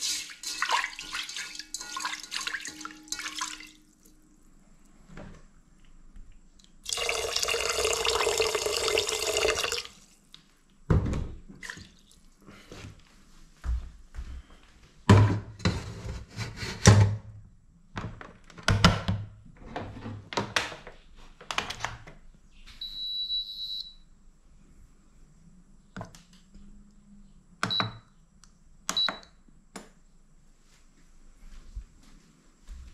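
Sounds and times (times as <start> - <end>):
electronic beep: 22.8 - 24.0
short beeps: 22.8 - 24.0.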